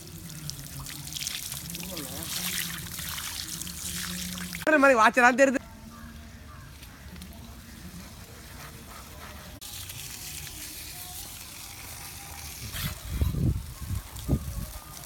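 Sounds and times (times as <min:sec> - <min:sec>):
water spraying from hose: 0:00.0 - 0:04.7, 0:09.5 - 0:15.0.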